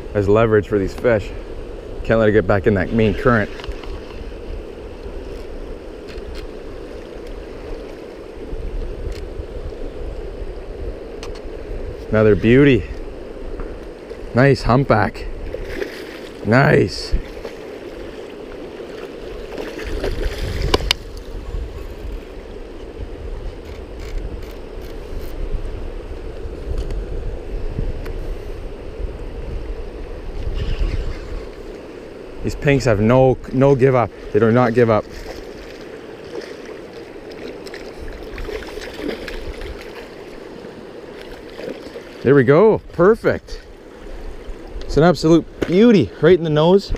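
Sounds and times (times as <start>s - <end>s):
wind on microphone: 0.0s - 46.9s
fish splashing at the surface: 15.5s - 16.4s, 35.1s - 40.4s
river rushing over gravel: 31.5s - 46.9s.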